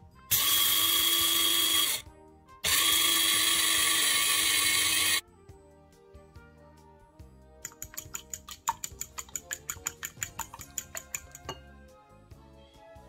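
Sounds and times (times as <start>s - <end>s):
blade grinder whirring: 0.3s - 2.0s, 2.6s - 5.2s.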